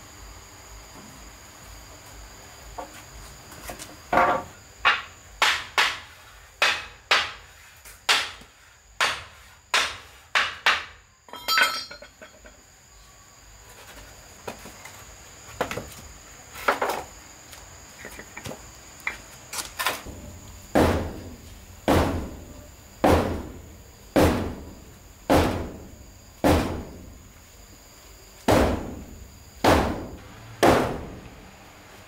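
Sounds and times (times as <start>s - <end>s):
insects droning: 0.0s - 32.0s
hammer striking nails into wood: 4.2s - 7.4s, 8.1s - 11.0s, 21.9s - 22.4s, 23.0s - 23.6s, 24.2s - 24.7s, 25.3s - 25.8s, 26.4s - 26.9s, 28.5s - 29.0s, 29.6s - 31.2s.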